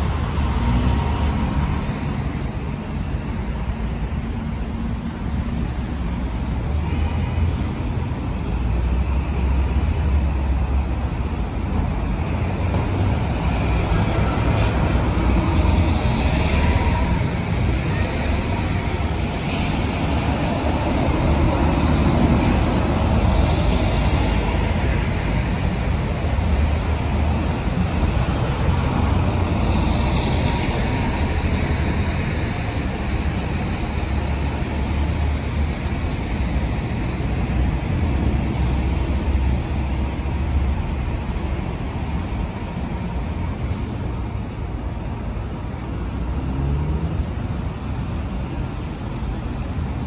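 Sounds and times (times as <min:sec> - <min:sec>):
diesel buses driving by: 0:00.0 - 0:50.0
traffic rumble: 0:00.0 - 0:50.0
air brake hiss: 0:19.4 - 0:20.1.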